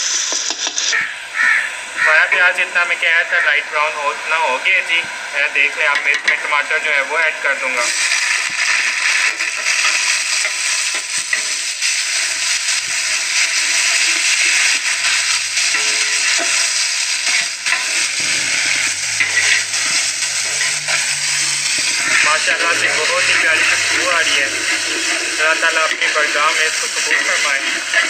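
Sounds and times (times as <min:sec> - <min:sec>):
food sizzling in hot oil: 0:00.0 - 0:02.1, 0:04.1 - 0:28.0
metal spatula scraping pot: 0:07.8 - 0:28.0.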